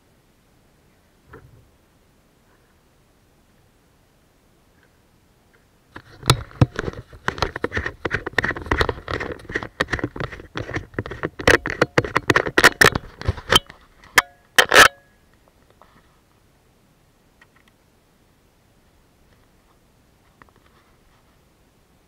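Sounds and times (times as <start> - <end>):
hard objects clicking and rattling: 6.0 - 15.0
brief ring: 13.5 - 15.2.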